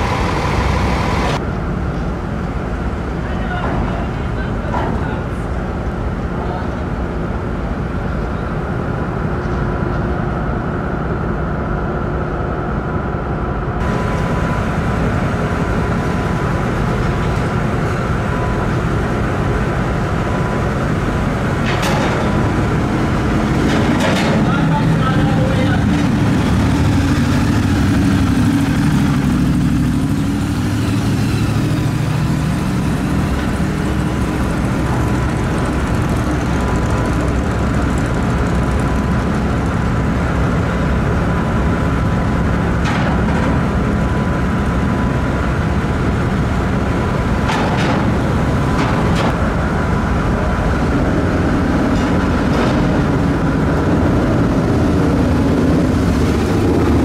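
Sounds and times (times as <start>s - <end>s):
motorcycle and car engines rumbling: 13.8s - 57.0s.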